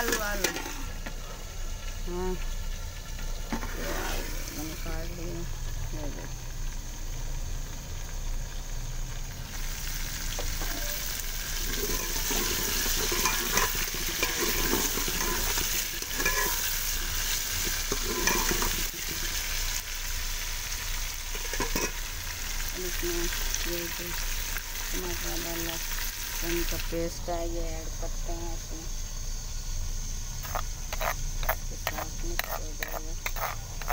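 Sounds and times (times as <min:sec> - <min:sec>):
food sizzling in oil: 0:00.0 - 0:33.9
metal ladle scraping pot: 0:11.6 - 0:19.3, 0:21.3 - 0:22.0, 0:30.4 - 0:33.9.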